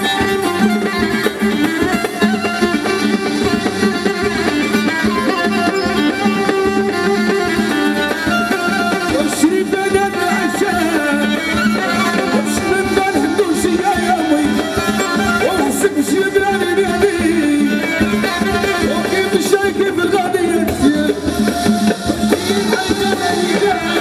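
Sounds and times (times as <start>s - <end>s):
live folk band through pa: 0.0s - 24.0s.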